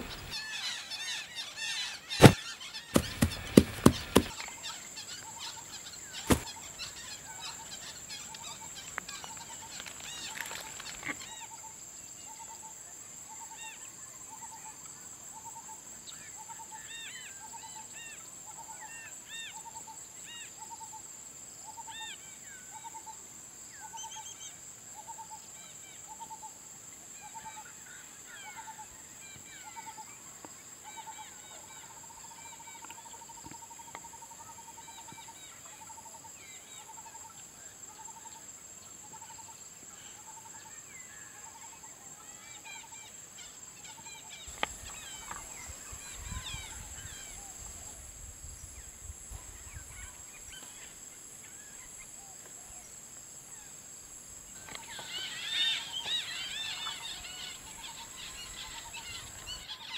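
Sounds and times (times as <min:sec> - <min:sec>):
bird chirps: 0:00.0 - 0:11.1.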